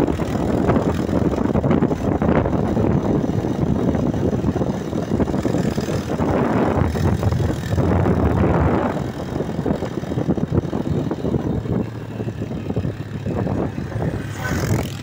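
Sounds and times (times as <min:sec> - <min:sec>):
small motorcycle engine running: 0:00.0 - 0:15.0
wind rushing over microphone: 0:00.0 - 0:15.0.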